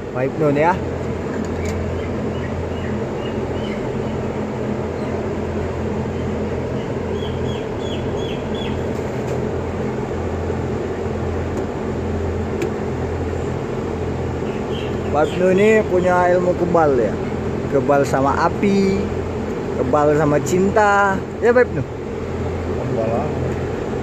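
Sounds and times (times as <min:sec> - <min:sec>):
ventilation blowers humming: 0:00.0 - 0:24.0
chickens calling: 0:01.3 - 0:09.2, 0:14.4 - 0:16.3.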